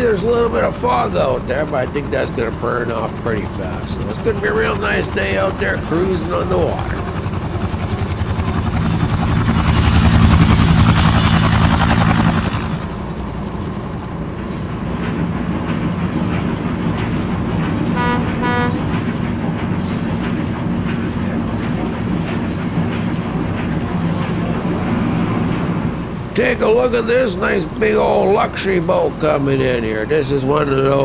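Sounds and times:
helicopter rotor chop: 0.0s - 31.0s
low engine drone: 0.0s - 31.0s
boat horn toots: 17.9s - 19.0s.

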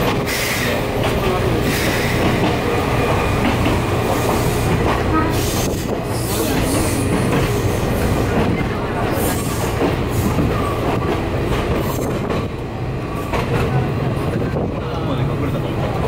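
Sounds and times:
train wheels rumbling on track: 0.0s - 16.0s.

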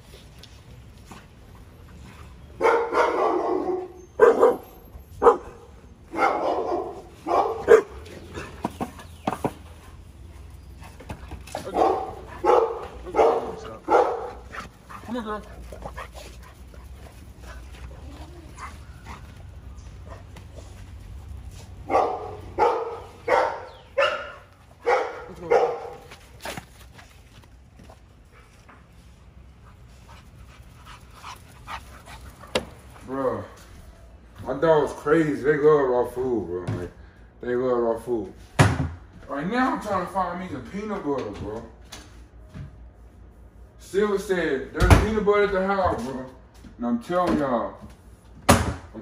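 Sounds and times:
dogs barking: 2.6s - 8.6s, 11.5s - 15.2s, 21.8s - 26.2s.

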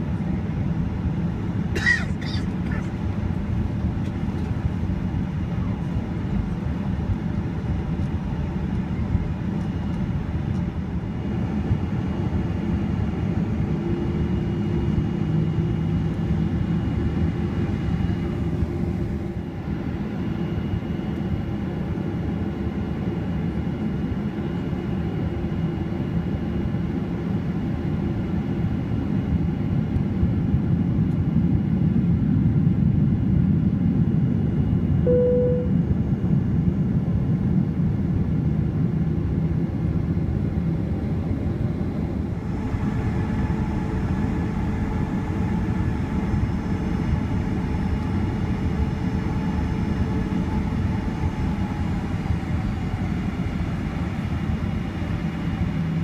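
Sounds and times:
airplane cabin low rumble: 0.0s - 56.0s
faint steady hum: 35.0s - 36.0s.

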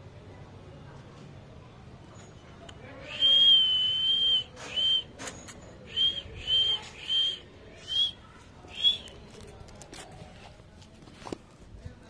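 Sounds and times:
person whistling: 3.1s - 5.1s, 5.9s - 8.2s.

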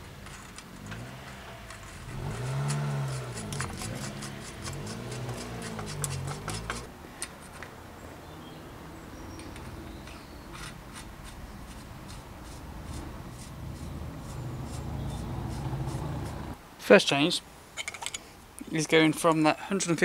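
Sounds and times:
light metal clicks and rubbing: 0.0s - 7.7s, 9.4s - 14.8s.

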